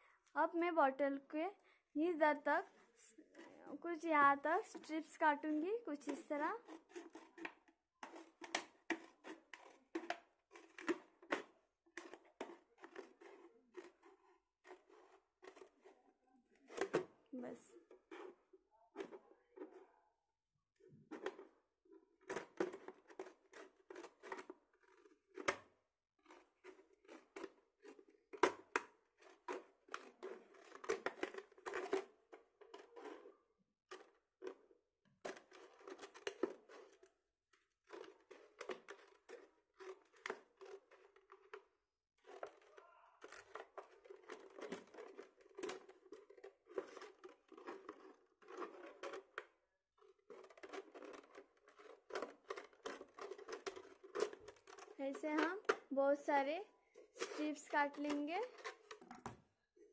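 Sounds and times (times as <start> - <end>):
scissors snipping plastic: 22.2 - 33.3, 35.2 - 37.1, 37.8 - 41.6, 42.2 - 49.5, 50.1 - 55.9.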